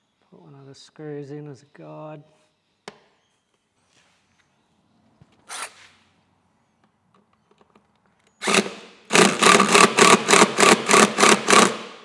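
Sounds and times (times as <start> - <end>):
cordless drill driving a screw: 8.4 - 11.9.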